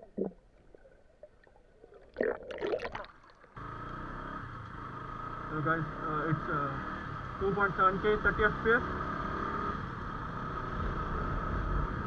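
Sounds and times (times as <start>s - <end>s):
underwater bubbling and gurgling: 0.0s - 3.6s
motorcycle engine running: 3.6s - 12.0s.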